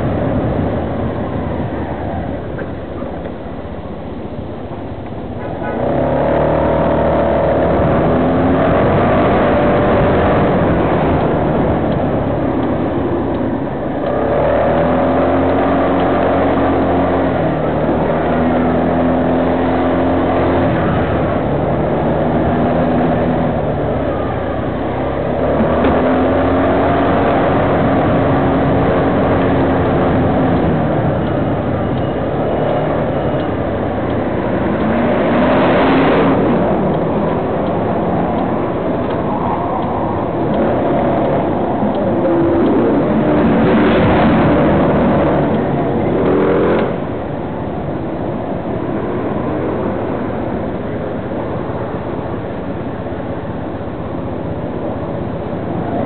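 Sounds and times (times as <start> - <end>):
road and wind noise: 0.0 - 56.0
street traffic noise: 0.0 - 56.0
vehicle engine running: 0.0 - 56.0.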